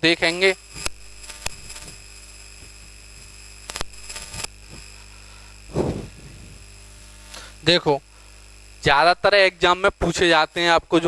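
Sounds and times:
electrical hum and hiss: 0:00.0 - 0:11.0
sharp clicks: 0:03.6 - 0:04.9
short breathy rush: 0:05.1 - 0:06.6.

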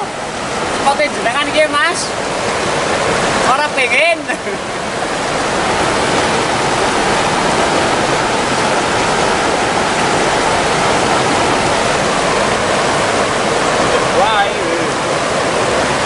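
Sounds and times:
river rushing over rocks: 0:00.0 - 0:16.0.

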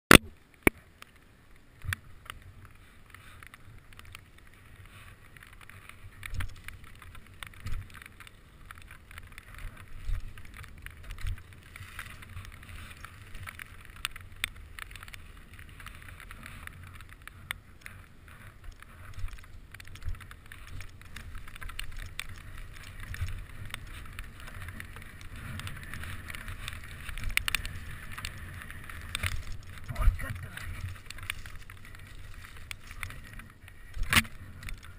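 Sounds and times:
wind rumble on microphone: 0:01.8 - 0:34.9
bicycle tyres hissing: 0:02.1 - 0:34.9
bicycle chain and frame rattling: 0:02.2 - 0:34.9.

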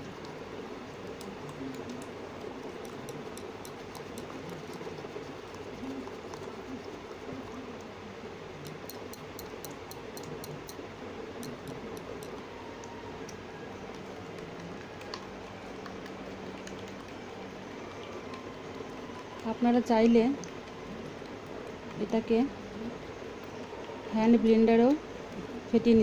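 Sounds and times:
spoon clicking against bowl: 0:08.7 - 0:10.8.

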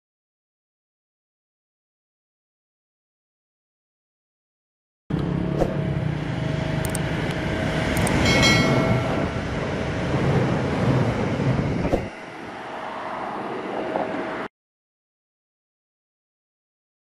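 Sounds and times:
train rumbling past: 0:05.2 - 0:14.5
sharp clicks: 0:06.8 - 0:07.0, 0:08.0 - 0:08.2
short chime: 0:08.2 - 0:09.6.

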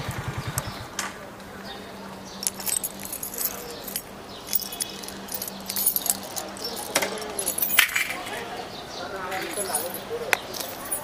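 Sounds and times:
light metallic jangling and clicking: 0:02.3 - 0:08.4, 0:09.3 - 0:11.0.

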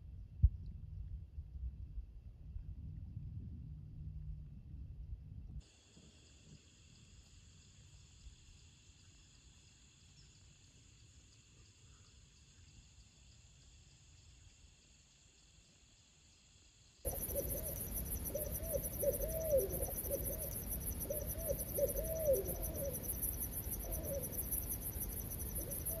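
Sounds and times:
high insect chorus: 0:05.6 - 0:26.0
high insect hum: 0:05.6 - 0:26.0
owl hooting: 0:17.1 - 0:26.0.

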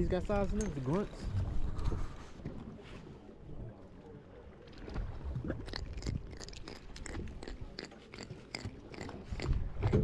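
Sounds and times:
fish grunting clicks: 0:05.5 - 0:10.0.

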